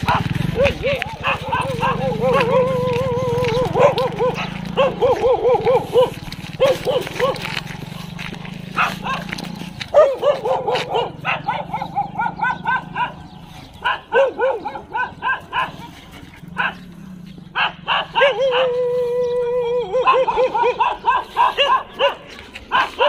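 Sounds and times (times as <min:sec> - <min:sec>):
dog barking: 0:00.0 - 0:16.9, 0:17.5 - 0:18.8, 0:19.9 - 0:23.0
dog howling: 0:00.1 - 0:08.1, 0:17.6 - 0:22.1.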